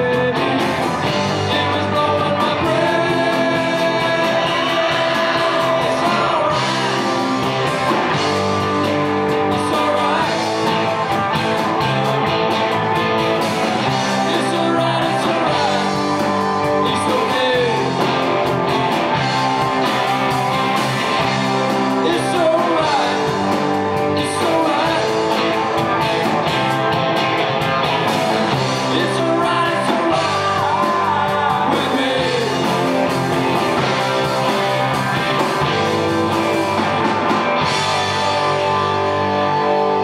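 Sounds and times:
man singing: 0.0 - 7.4, 9.3 - 10.9, 13.8 - 18.4, 21.9 - 26.0, 28.5 - 34.5
rock band playing: 0.0 - 40.0.

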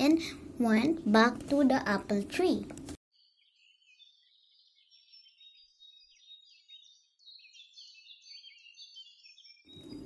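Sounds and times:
faint birdsong chirping: 3.1 - 10.0.

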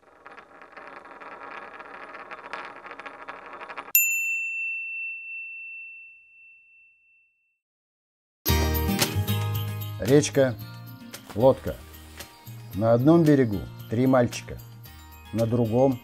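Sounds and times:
metal coin rolling: 0.0 - 4.1
high bell ding: 3.9 - 7.5.

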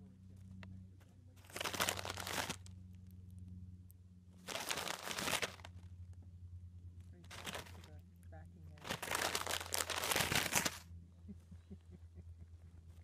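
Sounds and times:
plastic wrapper crinkling: 1.4 - 2.7, 4.4 - 5.8, 7.3 - 7.9, 8.8 - 10.8.

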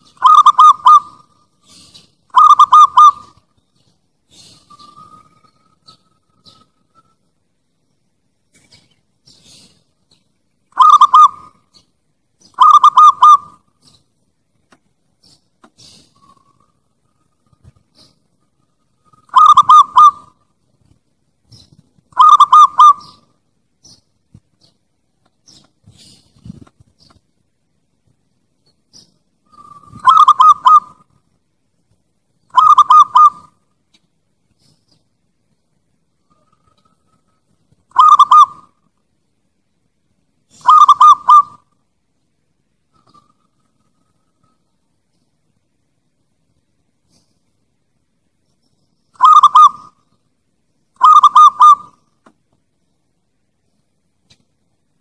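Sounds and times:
dove cooing: 0.0 - 3.4, 10.8 - 14.0, 19.0 - 20.4, 21.5 - 23.3, 29.5 - 31.2, 32.5 - 33.6, 37.9 - 38.8, 40.5 - 41.8, 49.2 - 50.1, 51.0 - 52.1.

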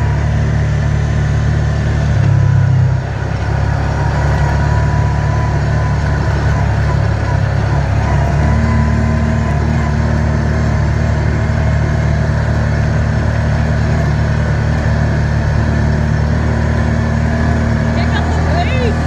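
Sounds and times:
atv engine droning: 0.0 - 19.0.

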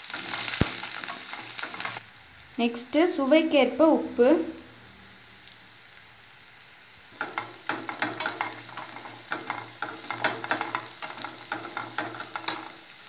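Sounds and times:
spatula scraping a pan: 0.0 - 2.0, 7.2 - 13.0
food sizzling in oil: 0.0 - 13.0.

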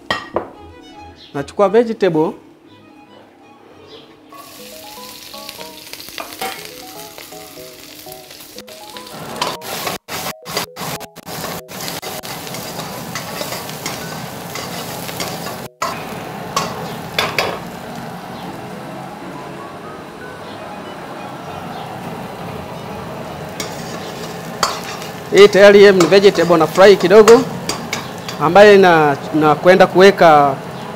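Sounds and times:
vegetables sizzling in a wok: 4.3 - 18.5, 23.0 - 29.4.

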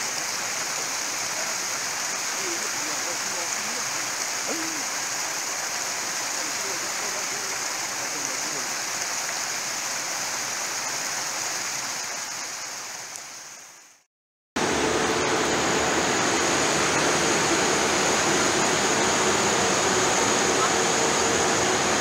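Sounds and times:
water rushing down cascade: 0.0 - 14.0, 14.6 - 22.0
loud steady rushing noise: 14.6 - 22.0.

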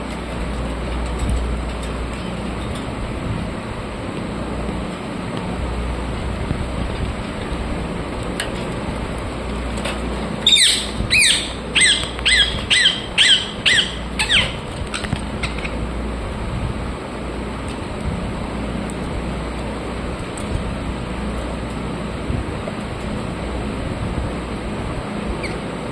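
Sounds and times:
background hum: 0.0 - 25.9
parakeet calling: 10.4 - 15.6.

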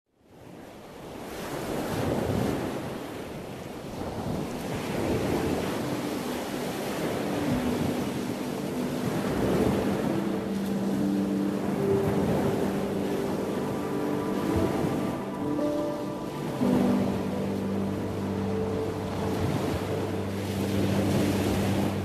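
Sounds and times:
ocean waves breaking: 0.4 - 22.0
soft sustained music notes: 4.6 - 22.0.

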